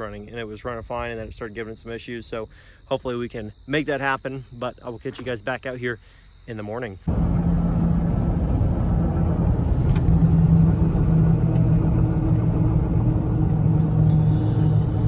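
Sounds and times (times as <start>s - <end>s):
truck engine and tyre hum: 7.1s - 15.0s.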